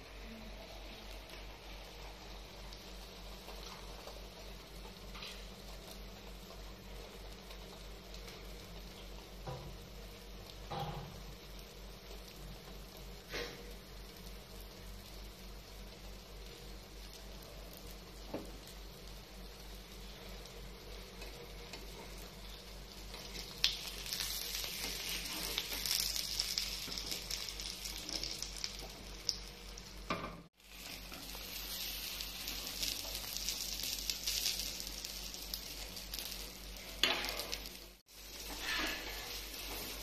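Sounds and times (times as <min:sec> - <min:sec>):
eggs sizzling in a pan: 0:00.0 - 0:40.0
metal spatula scraping a pan: 0:38.4 - 0:40.0.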